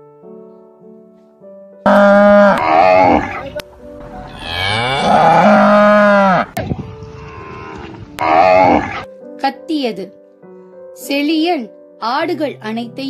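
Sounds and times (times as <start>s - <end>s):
soft background music: 0.0s - 13.0s
cows mooing: 1.9s - 3.6s, 4.2s - 6.6s, 7.2s - 9.1s.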